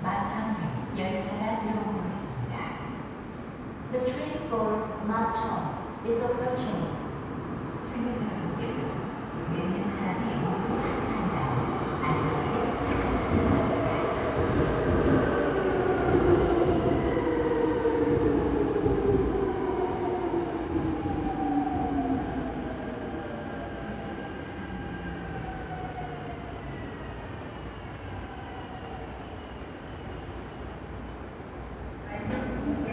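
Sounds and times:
faint high squeals: 26.6s - 28.2s, 28.8s - 30.4s.

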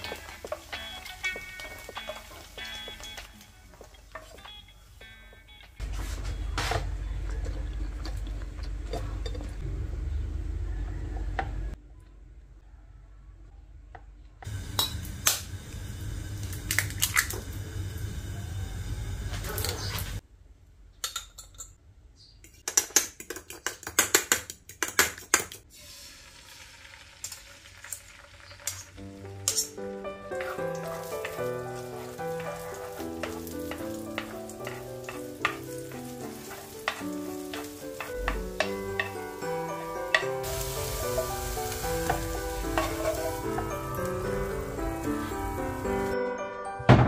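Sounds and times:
egg sizzling in frying pan: 0.0s - 4.6s, 14.4s - 18.2s, 25.7s - 46.2s
gentle background music: 0.0s - 5.8s, 29.0s - 47.0s
egg shell cracking: 16.5s - 17.4s.

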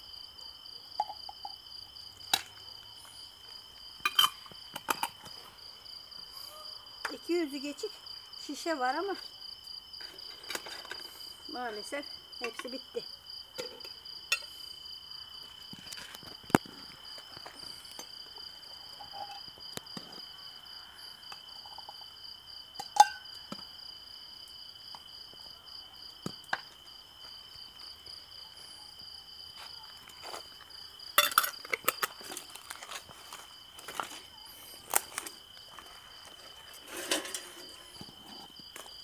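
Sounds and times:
crickets chirping: 0.0s - 39.0s
glass jars and lids clinking: 4.0s - 5.1s, 22.8s - 23.2s, 31.2s - 32.1s.

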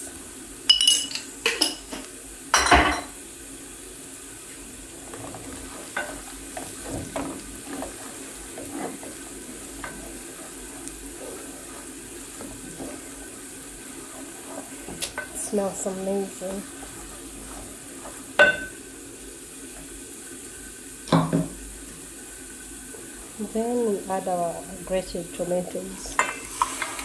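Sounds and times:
frying sizzle: 0.0s - 27.0s
wooden spoon stirring and scraping: 4.4s - 20.6s, 25.0s - 27.0s
knocks on metal cooking pot: 21.1s - 21.6s.

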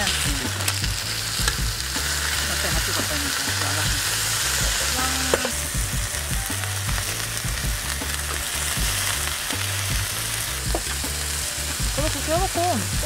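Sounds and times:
steaks sizzling on a griddle pan: 0.0s - 13.0s.

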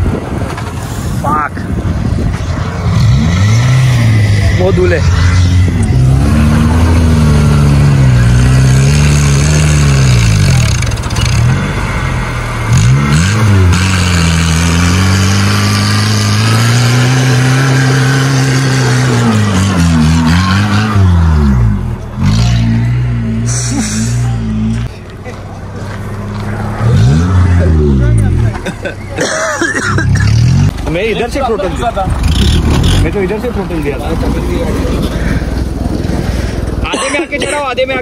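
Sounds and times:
engine revving hard: 2.8s - 24.9s, 26.6s - 28.6s.

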